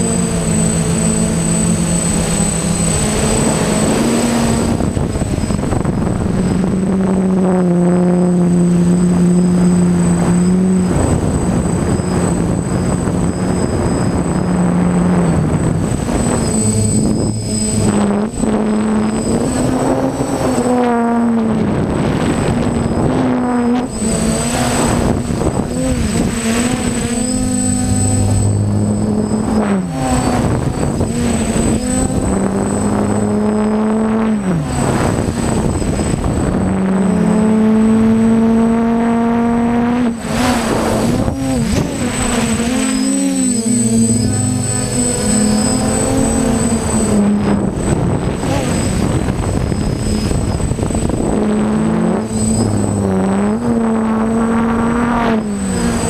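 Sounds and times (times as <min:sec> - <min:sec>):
drone motors whirring: 0:00.0 - 0:56.0
steady high whine: 0:00.0 - 0:56.0
rushing air: 0:40.1 - 0:56.0.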